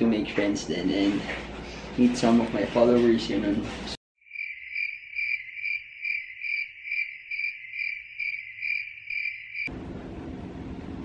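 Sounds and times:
cricket chirping: 4.2 - 9.7.

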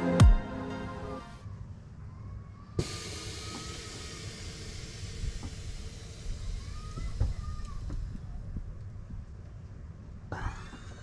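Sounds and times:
air hissing from airbags: 2.8 - 8.4.

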